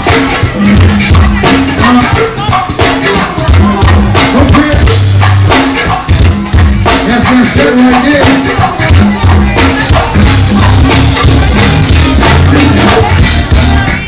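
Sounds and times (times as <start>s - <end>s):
bass line: 0.0s - 14.0s
conga drums: 0.0s - 14.0s.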